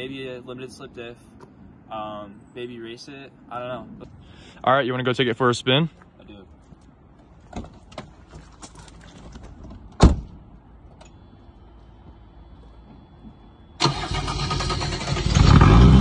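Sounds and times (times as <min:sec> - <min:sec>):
car door shutting: 0:10.0 - 0:10.4
diesel engine cranking and starting: 0:13.8 - 0:16.0.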